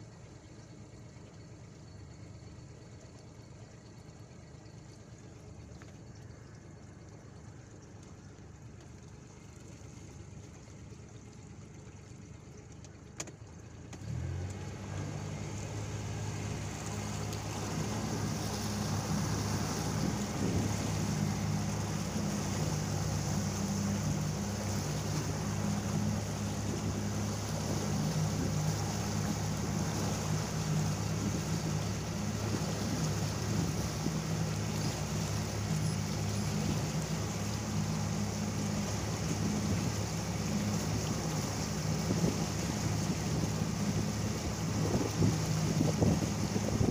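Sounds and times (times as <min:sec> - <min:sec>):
boat motor running: 0:00.0 - 0:46.9
water rushing: 0:02.6 - 0:46.9
rushing wind: 0:17.3 - 0:35.2, 0:41.9 - 0:46.9.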